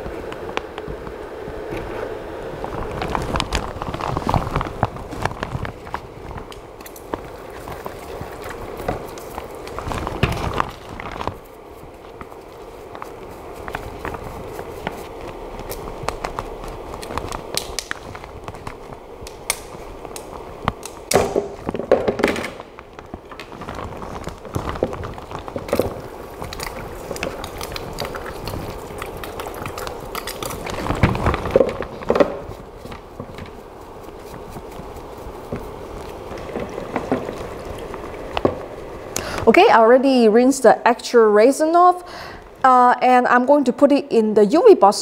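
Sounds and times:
handling noise: 0.3s - 39.4s
brush scrubbing: 6.9s - 20.3s, 23.7s - 39.2s.

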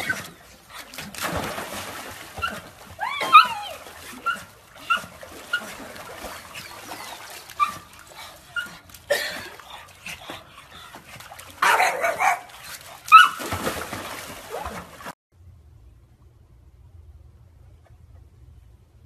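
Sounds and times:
water splashing: 0.0s - 15.2s
small dog yipping: 2.4s - 5.1s, 13.1s - 13.6s.

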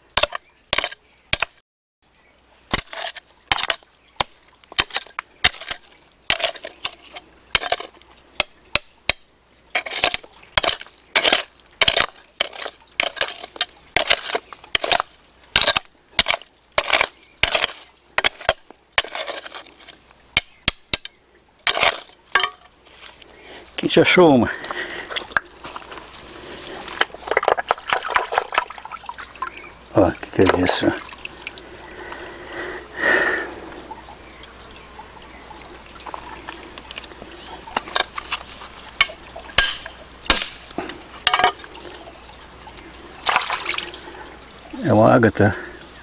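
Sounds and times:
hand hoe chopping stony soil: 0.0s - 1.6s, 2.7s - 23.2s, 37.7s - 41.6s.

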